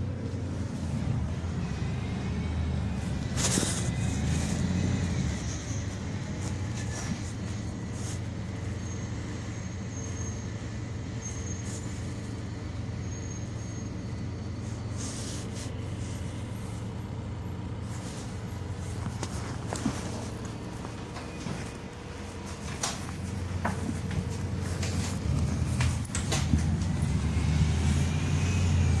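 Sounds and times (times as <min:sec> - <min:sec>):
bus engine and road drone: 0:00.0 - 0:29.0.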